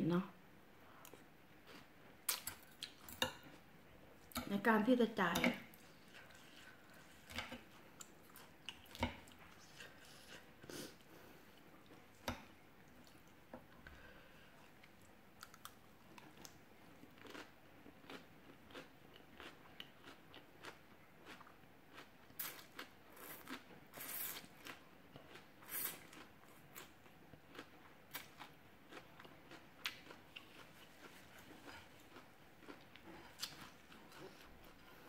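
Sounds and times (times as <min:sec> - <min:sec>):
person chewing and smacking: 0:01.0 - 0:03.6, 0:05.7 - 0:10.7, 0:14.7 - 0:35.0.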